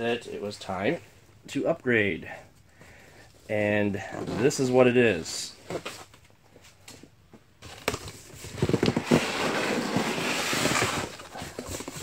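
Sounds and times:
cardboard and foam rustling: 5.5s - 12.0s.

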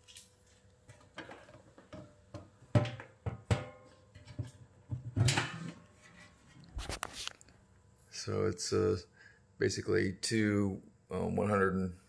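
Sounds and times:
metal cover clattering open: 0.9s - 6.4s.

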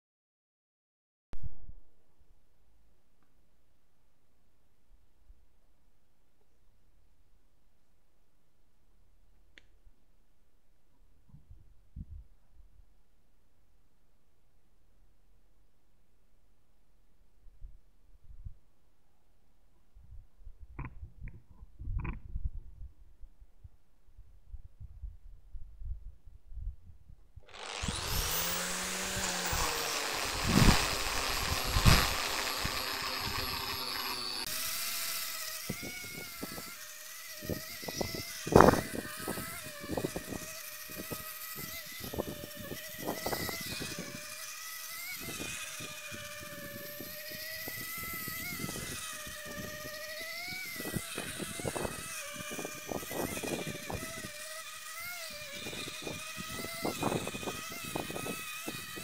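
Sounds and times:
angle grinder whining: 27.5s - 59.0s
sanding disc on wood: 27.5s - 59.0s.

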